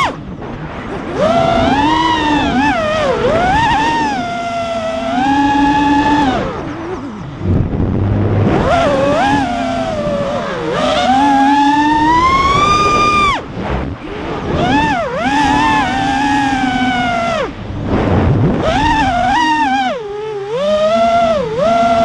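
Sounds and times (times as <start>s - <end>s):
drone motors whining: 0.0s - 22.0s
rush of air: 7.2s - 9.3s, 12.1s - 16.3s, 17.3s - 19.2s.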